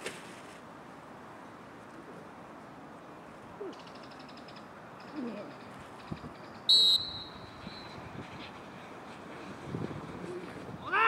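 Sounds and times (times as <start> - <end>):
sports whistle blast: 6.7 - 7.9.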